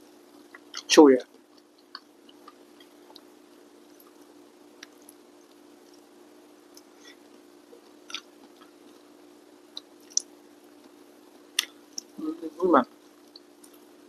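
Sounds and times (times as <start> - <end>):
low steady hum: 0.0 - 14.0
wet clicks and smacks: 0.5 - 3.3, 7.8 - 8.8, 9.7 - 12.2
person chewing: 1.5 - 9.1, 9.7 - 11.0.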